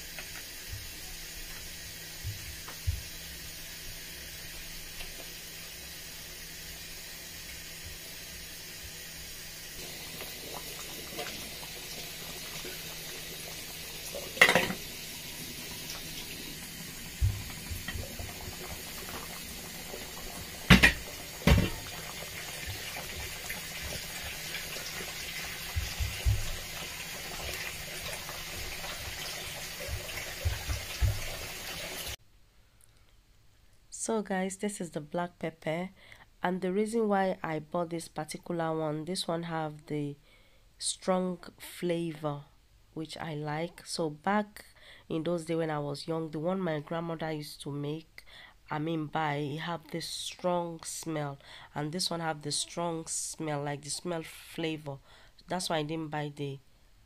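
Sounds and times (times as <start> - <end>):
soup bubbling in a pot: 0.0 - 32.2
sharp clatters against pot: 14.4 - 14.8.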